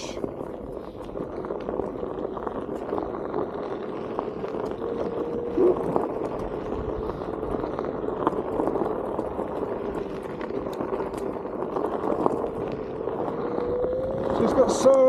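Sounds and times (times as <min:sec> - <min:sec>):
electric hub motor whining: 0:00.0 - 0:15.0
small stones clicking: 0:00.0 - 0:15.0
tyre crunching on dirt trail: 0:00.0 - 0:15.0.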